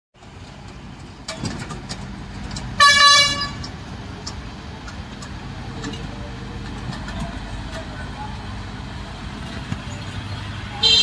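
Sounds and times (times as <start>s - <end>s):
road traffic rumble: 0.2s - 11.0s
high horn blast: 2.8s - 3.7s, 10.8s - 11.0s.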